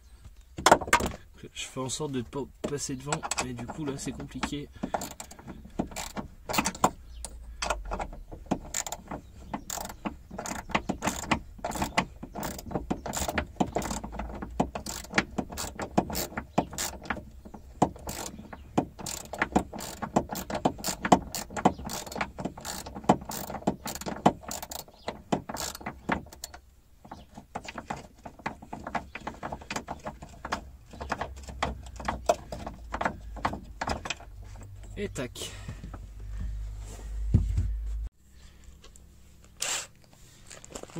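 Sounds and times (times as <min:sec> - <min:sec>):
hand ratchet clicking: 0:04.8 - 0:26.6.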